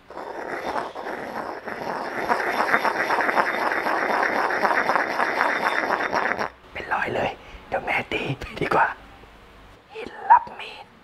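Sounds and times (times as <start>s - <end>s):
pestle grinding in stone mortar: 0.0s - 6.5s.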